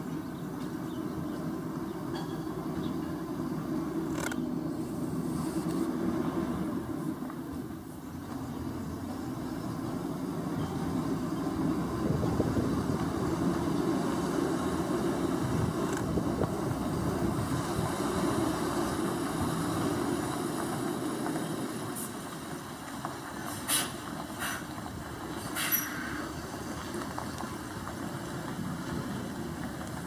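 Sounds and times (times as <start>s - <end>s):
truck diesel engine rumbling: 0.0s - 30.0s.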